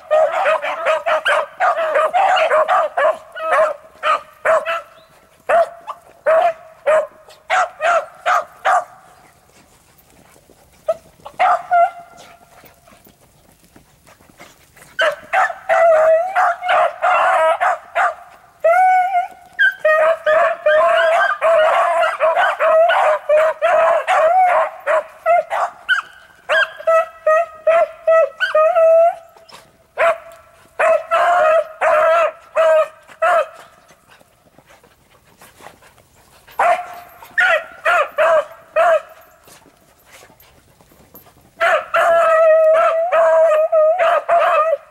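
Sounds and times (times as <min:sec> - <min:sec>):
dogs barking: 0:00.0 - 0:09.3, 0:10.8 - 0:12.4, 0:15.0 - 0:18.3, 0:19.6 - 0:29.2, 0:30.0 - 0:33.8, 0:36.5 - 0:39.4, 0:41.6 - 0:44.9.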